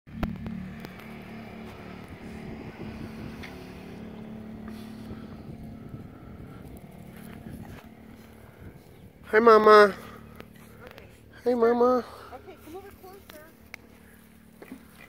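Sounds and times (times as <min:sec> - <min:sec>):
engine hum: 0:00.0 - 0:15.0
wind rumbling on microphone: 0:00.1 - 0:09.4.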